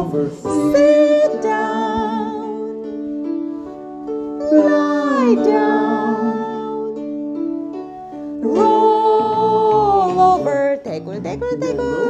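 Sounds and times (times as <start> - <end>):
woman singing: 0.0 - 2.9, 4.4 - 7.0, 8.4 - 12.0
plucked string accompaniment: 0.0 - 12.0.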